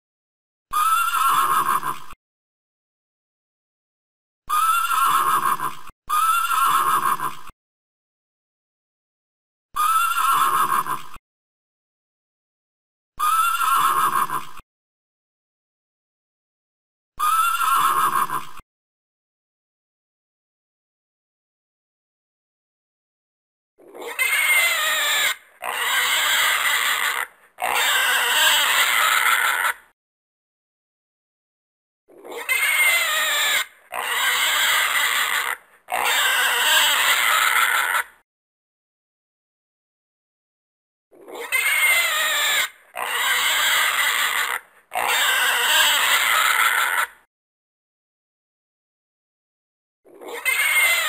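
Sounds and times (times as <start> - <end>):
animal squealing shrilly: 0.7 - 2.1, 4.5 - 7.4, 9.8 - 11.0, 13.2 - 14.5, 17.2 - 18.6, 23.9 - 29.9, 32.2 - 38.2, 41.2 - 47.3, 50.1 - 51.0.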